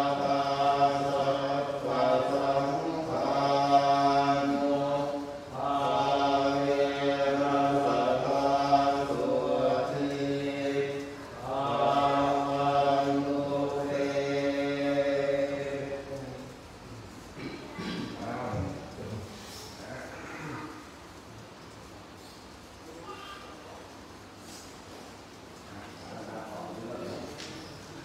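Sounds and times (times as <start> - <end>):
men chanting in unison: 0.0 - 16.6.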